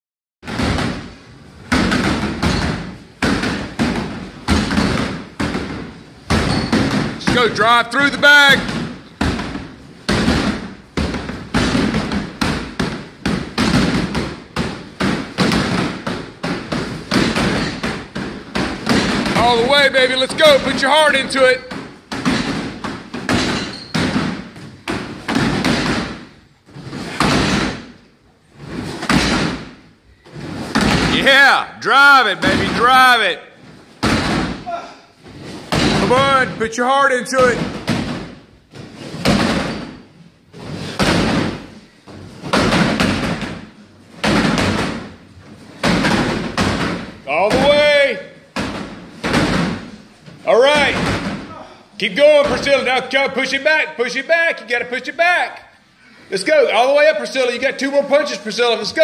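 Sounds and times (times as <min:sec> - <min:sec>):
punches thudding on heavy bag: 0:08.6 - 0:19.8, 0:29.0 - 0:29.8, 0:30.7 - 0:31.2.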